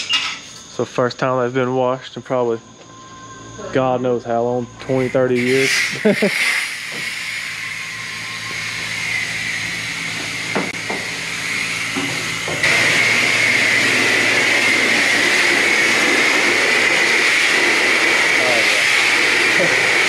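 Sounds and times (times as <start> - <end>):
pressure washer spraying car: 4.8 - 20.0.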